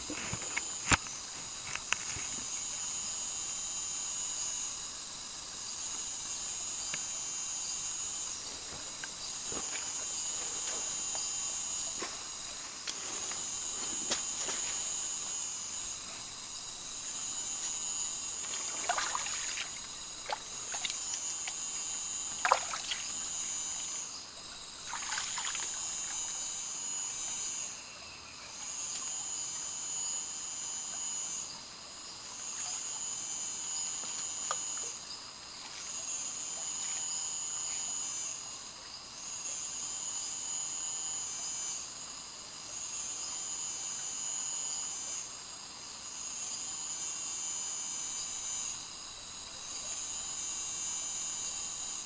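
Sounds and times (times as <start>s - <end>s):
insects droning: 0.0s - 52.0s
pulsing insect call: 0.0s - 52.0s
splashes of wading: 18.5s - 21.0s, 22.4s - 23.2s, 24.9s - 25.8s
creek trickling: 18.6s - 21.1s, 22.4s - 23.2s.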